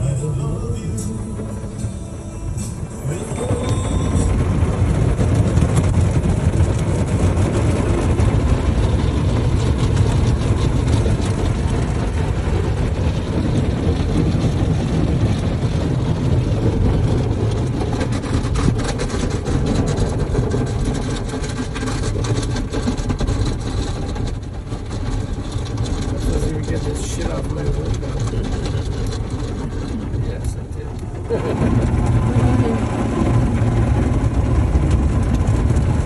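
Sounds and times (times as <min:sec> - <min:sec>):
car wash water and machinery rumble: 0:00.0 - 0:36.0.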